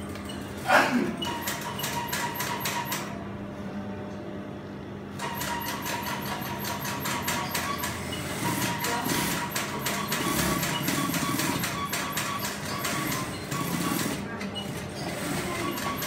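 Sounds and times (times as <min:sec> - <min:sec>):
sewing machine stitching: 0:05.2 - 0:16.0.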